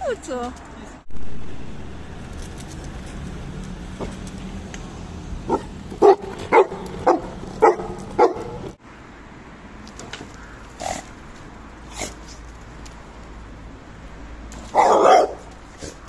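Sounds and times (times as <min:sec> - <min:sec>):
dog barking: 0:05.5 - 0:08.7, 0:14.7 - 0:15.5.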